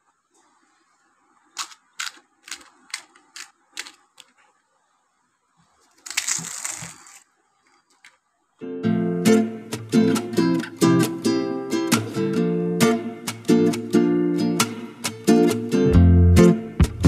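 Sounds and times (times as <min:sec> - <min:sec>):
crisp shell clicking: 0:01.6 - 0:04.4
crisp shell cracking open: 0:01.6 - 0:04.4, 0:05.9 - 0:07.3.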